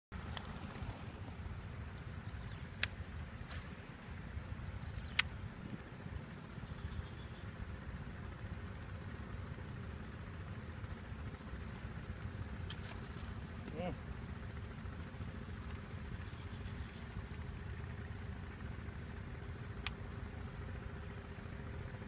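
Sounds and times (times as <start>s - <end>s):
sharp clicks: 2.7s - 3.1s, 5.0s - 5.4s.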